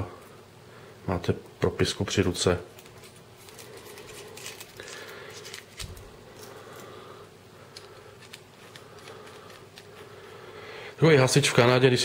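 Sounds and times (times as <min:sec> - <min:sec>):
small handling clicks and rubbing: 0:07.7 - 0:10.1.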